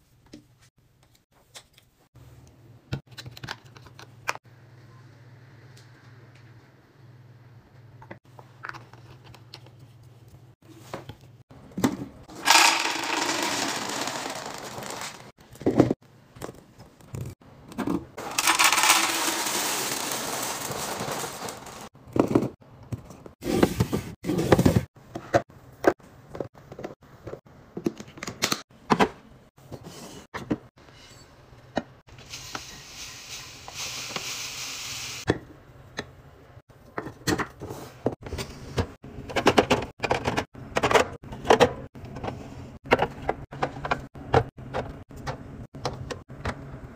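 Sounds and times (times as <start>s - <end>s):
dry food pouring into canisters: 12.4s - 15.3s, 18.2s - 21.9s.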